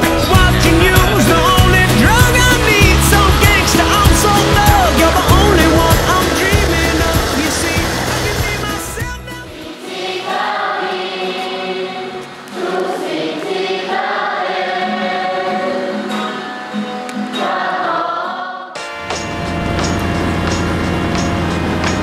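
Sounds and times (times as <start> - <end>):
low vehicle rumble: 0.0 - 9.3, 19.3 - 22.0
group singing: 0.0 - 18.8.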